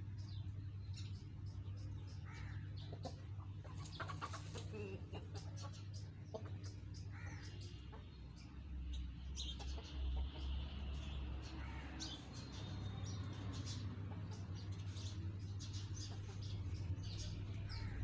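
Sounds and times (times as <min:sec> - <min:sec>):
steady low hum: 0:00.0 - 0:12.6
chickens clucking softly: 0:02.6 - 0:07.1, 0:09.4 - 0:10.6.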